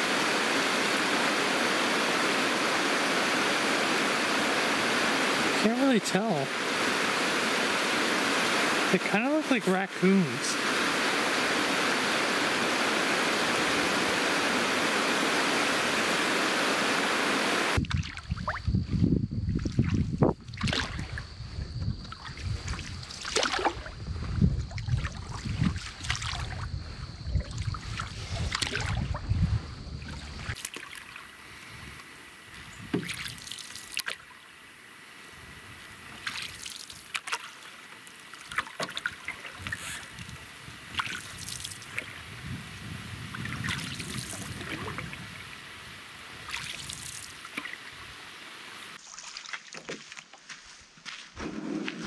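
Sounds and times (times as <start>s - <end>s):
sharp splashes: 23.1s - 23.9s, 30.4s - 31.4s, 33.0s - 34.4s, 36.2s - 40.1s, 46.4s - 48.0s, 48.9s - 49.8s
paddle strokes in water: 27.4s - 29.3s, 30.0s - 32.1s, 36.1s - 42.2s, 46.4s - 50.5s, 51.4s - 52.0s
water trickling and dripping: 33.0s - 34.6s.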